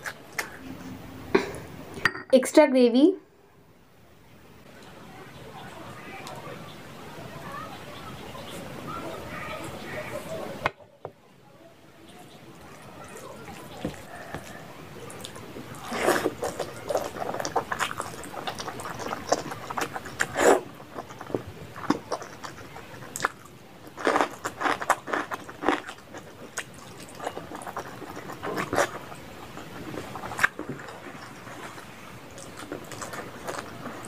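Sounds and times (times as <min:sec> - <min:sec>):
wet chewing and lip-smacking: 0:00.0 - 0:00.6, 0:12.6 - 0:34.0.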